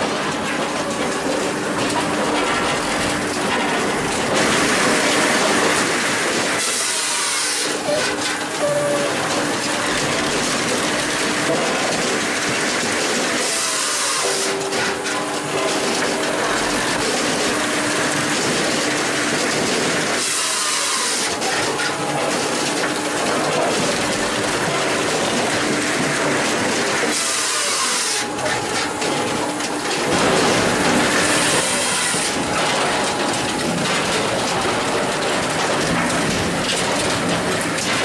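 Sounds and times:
machine hydraulics humming: 0.8 - 11.4
saw cutting through log: 4.5 - 8.3, 13.2 - 15.2, 19.9 - 22.1, 27.0 - 29.0, 30.0 - 33.4.

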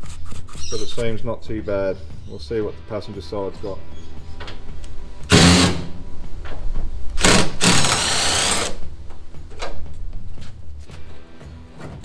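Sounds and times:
cordless power driver bursts: 5.3 - 6.0, 7.2 - 8.8.

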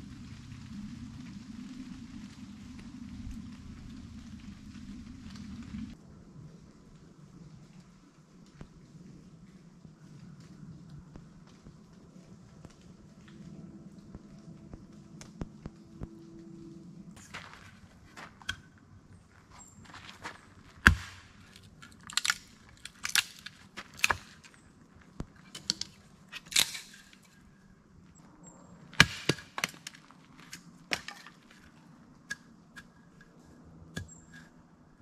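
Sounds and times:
wood cracking and snapping: 20.0 - 27.4, 29.0 - 31.8.

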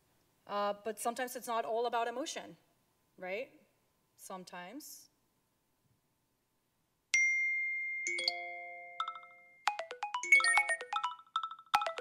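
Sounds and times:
phone alert tone: 7.2 - 12.0.

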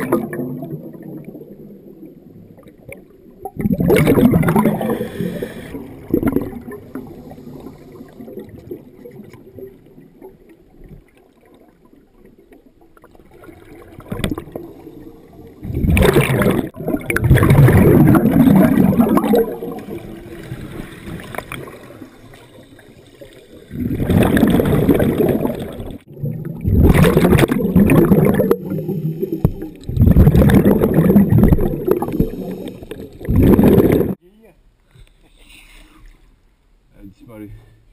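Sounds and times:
underwater bubbles gurgling: 0.0 - 34.2.

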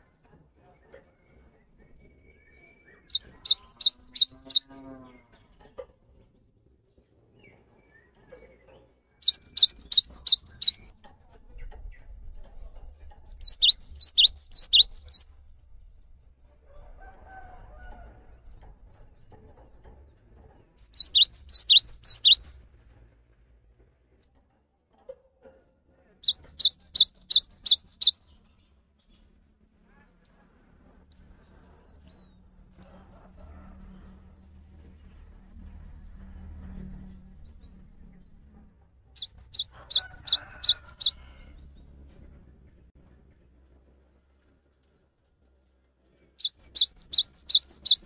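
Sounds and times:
bird singing whistled notes: 3.1 - 4.7, 9.2 - 10.8, 13.3 - 15.3, 20.8 - 22.6, 26.2 - 28.3, 30.3 - 34.4, 35.0 - 35.6, 39.2 - 41.2, 46.4 - 48.0.

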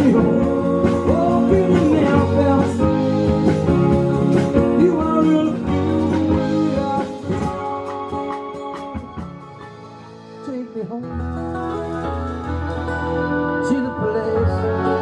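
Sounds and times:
person singing: 0.0 - 9.6, 13.4 - 15.0
acoustic guitar: 0.0 - 15.0
drums: 0.0 - 15.0
keyboard: 0.0 - 15.0.

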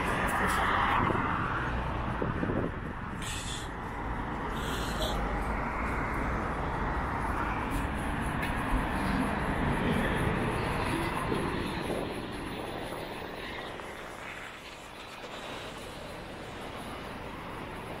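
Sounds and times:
passing vehicle rumble and tyre noise: 0.0 - 18.0.

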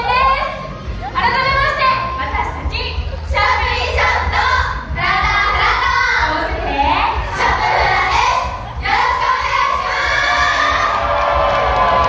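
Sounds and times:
women's sing-song voices over pa: 3.3 - 10.9.

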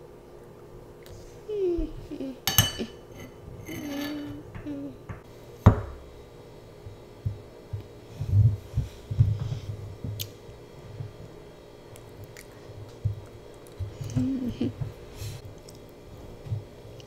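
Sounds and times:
spoon clinking in ceramic bowl: 2.5 - 2.9.

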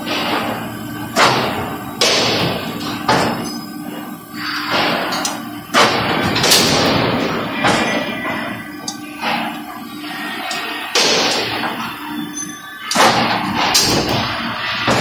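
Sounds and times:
steady machine hum: 0.0 - 15.0
heavy metallic thumps: 4.6 - 9.6.

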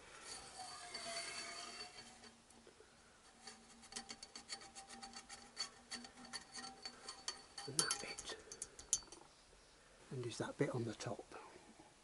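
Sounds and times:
metal spring scraping in tube: 0.0 - 9.3
light metal ticks: 3.9 - 9.3.

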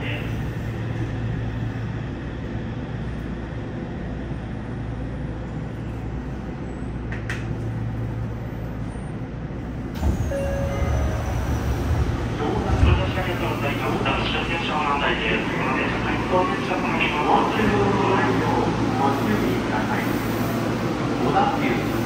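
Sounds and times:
train wheels rumbling: 9.6 - 22.0
short steady tone: 10.3 - 11.8.

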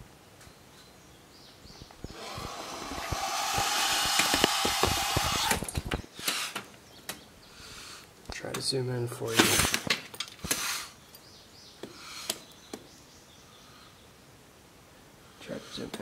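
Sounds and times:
vulture chick hissing: 2.0 - 5.6, 6.2 - 6.7, 7.5 - 8.1, 10.4 - 11.0, 11.9 - 12.5.

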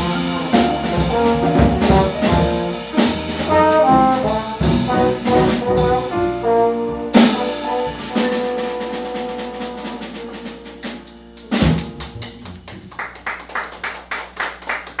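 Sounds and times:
held horn note: 0.0 - 11.0
loud drum and cymbal hit: 0.0 - 12.4.

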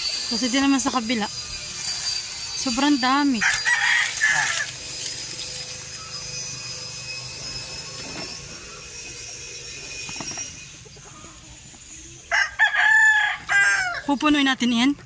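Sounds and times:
rooster crowing: 3.4 - 7.2, 12.2 - 14.1.

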